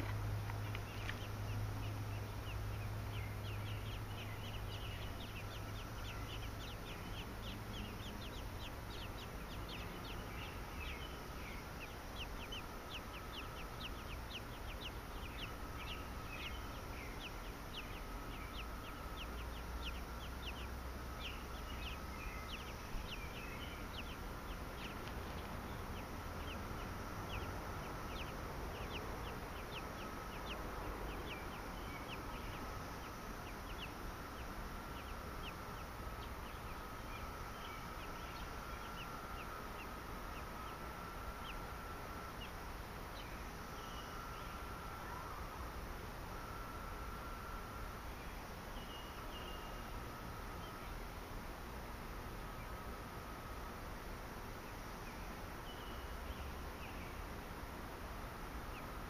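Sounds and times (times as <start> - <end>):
nestlings peeping: 0.0 - 59.0
steady low hum: 0.0 - 59.0.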